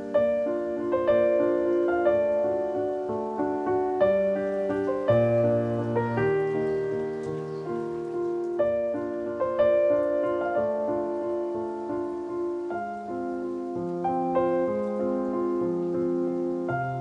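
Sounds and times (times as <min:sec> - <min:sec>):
piano music: 0:00.0 - 0:17.0.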